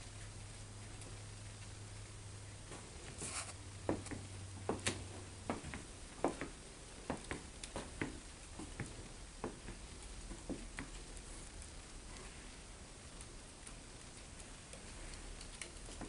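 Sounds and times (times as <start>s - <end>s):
footsteps on wooden floorboards: 2.7s - 11.1s.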